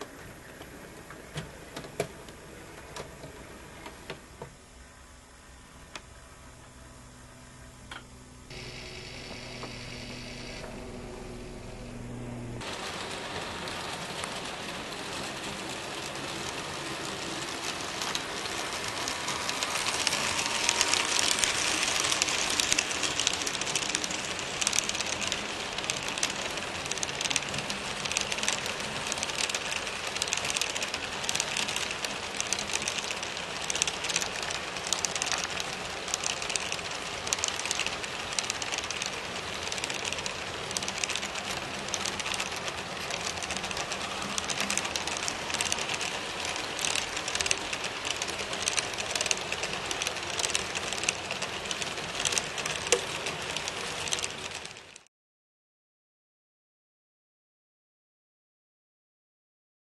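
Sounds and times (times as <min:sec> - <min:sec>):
model train wheels rattling on track: 0:12.6 - 0:55.1.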